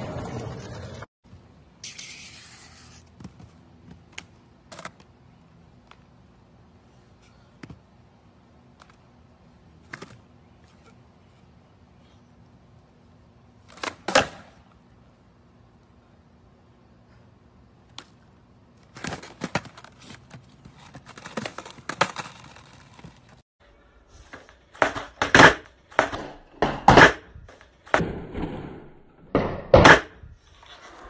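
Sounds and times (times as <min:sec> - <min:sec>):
skateboard clacking on concrete: 0:24.8 - 0:27.7.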